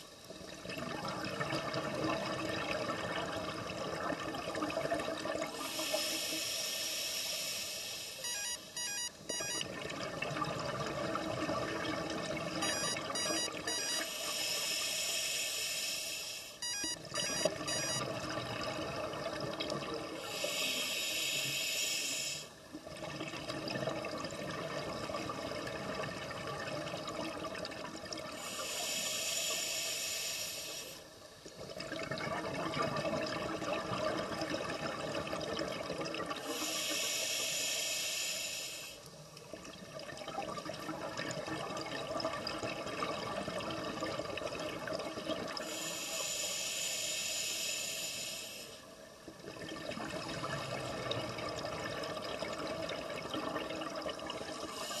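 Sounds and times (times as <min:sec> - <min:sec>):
bubbling water: 0:00.3 - 0:05.7, 0:49.2 - 0:55.0
diver breathing through regulator: 0:20.2 - 0:22.5, 0:28.4 - 0:31.0, 0:36.4 - 0:39.0, 0:45.6 - 0:48.8.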